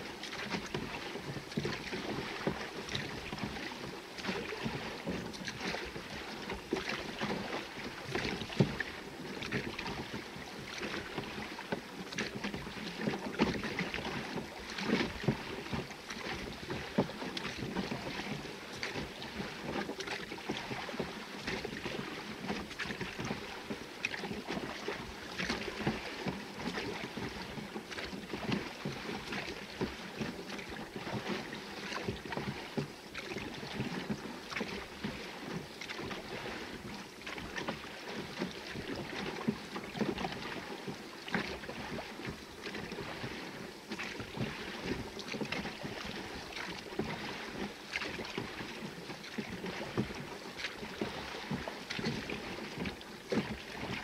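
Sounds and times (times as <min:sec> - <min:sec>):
oars pulling through water: 0:00.0 - 0:54.0
water lapping against hull: 0:00.0 - 0:54.0.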